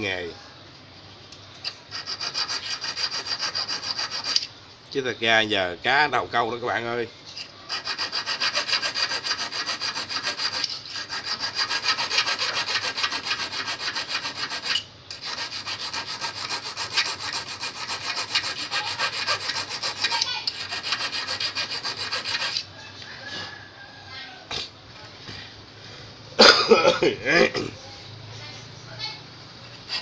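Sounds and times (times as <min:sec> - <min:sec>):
metal file rasping on steel: 0:01.6 - 0:04.5, 0:07.4 - 0:22.7, 0:29.6 - 0:30.0.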